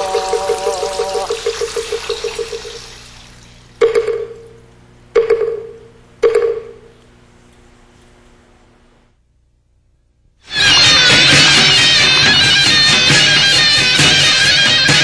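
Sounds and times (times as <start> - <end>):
wavering pulsing ring with hiss: 0.0 - 3.6.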